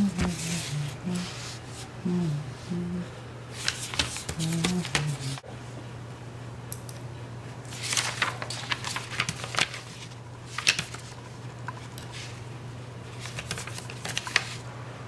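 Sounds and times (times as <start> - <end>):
paper rustling: 0.0 - 1.9, 3.5 - 5.4, 7.7 - 12.4, 13.1 - 14.6
steady low hum: 0.0 - 13.8.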